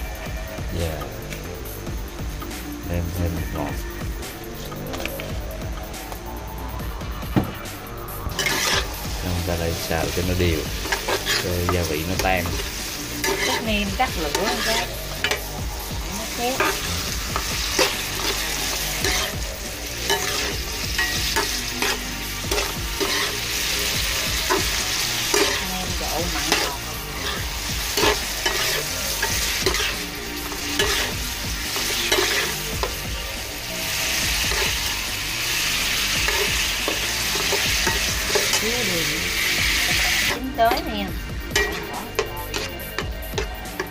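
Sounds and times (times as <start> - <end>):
vegetables sizzling in oil: 0.0 - 43.9
metal spoon scraping pan: 8.3 - 8.9, 10.8 - 15.5, 16.5 - 19.4, 20.0 - 25.7, 26.4 - 33.0, 41.5 - 43.9.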